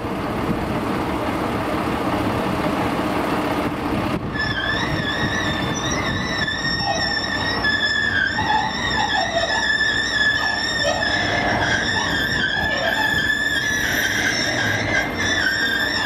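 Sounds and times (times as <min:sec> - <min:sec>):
high-pitched hydraulic squeal: 0:04.3 - 0:16.0.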